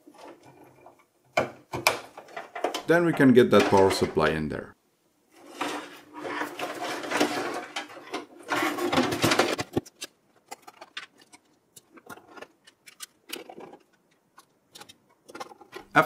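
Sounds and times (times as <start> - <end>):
sheet metal scraping and rattling: 5.3 - 9.8.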